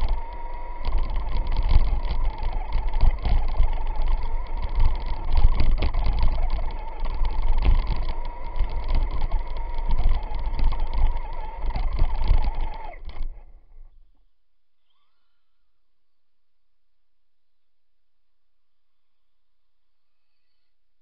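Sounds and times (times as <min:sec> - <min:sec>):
chassis knocking: 0:00.0 - 0:13.4
electric motor whine: 0:00.0 - 0:14.0, 0:14.8 - 0:15.8.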